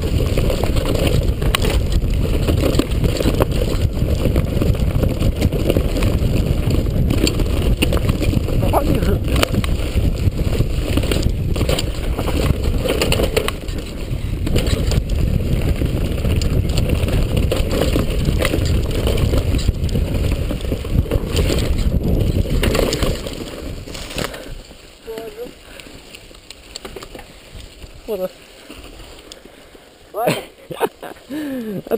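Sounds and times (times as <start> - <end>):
wind rushing on microphone: 0.0 - 25.6
mountain bike rattling over dirt: 0.0 - 31.7.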